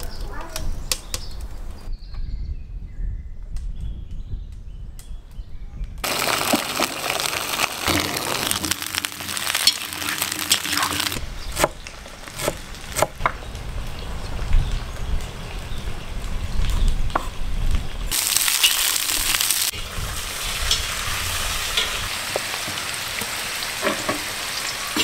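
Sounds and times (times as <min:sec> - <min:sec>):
potatoes sizzling in hot oil: 0:06.0 - 0:13.0, 0:14.8 - 0:25.0.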